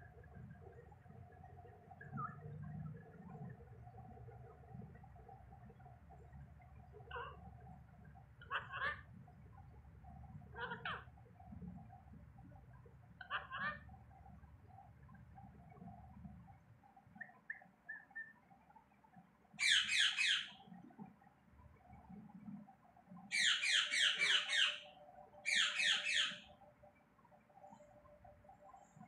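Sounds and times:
parakeet harsh repeated calls: 8.5s - 9.0s, 10.6s - 11.0s, 13.2s - 13.8s, 19.6s - 20.6s, 23.3s - 26.5s.

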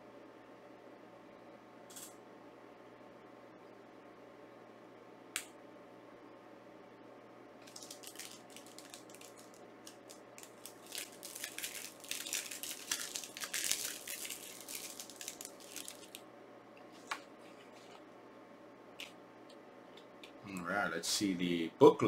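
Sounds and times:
packaging crinkling and rustling: 7.6s - 16.2s.

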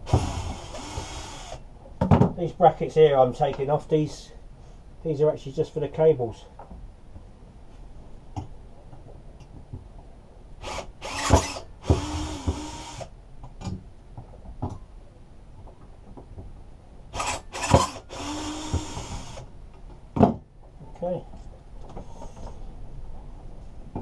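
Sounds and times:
drill bit knocks: 11.3s - 12.8s.

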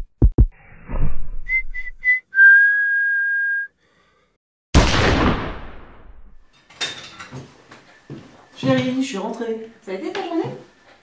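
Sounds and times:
high whistle: 1.5s - 3.8s
gunshot: 4.8s - 6.2s.

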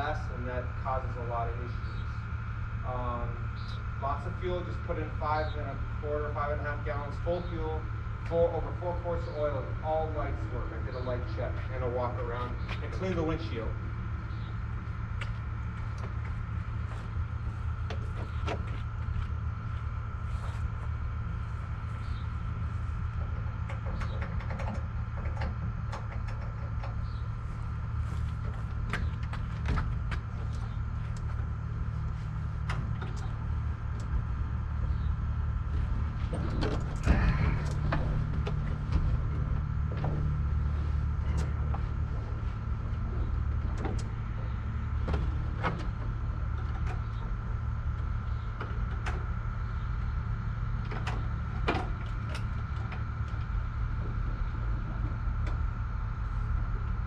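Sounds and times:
steady low rumble: 0.0s - 57.0s
clicks and knocks in aircraft cabin: 23.2s - 27.2s, 28.4s - 31.4s, 36.3s - 40.4s, 43.2s - 44.1s, 45.0s - 47.3s, 50.8s - 54.2s.

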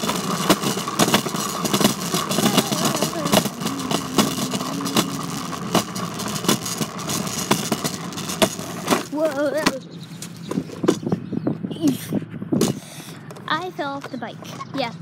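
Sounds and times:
rattling clicks and knocks: 0.0s - 11.2s
ride-on bike humming: 0.0s - 15.0s.

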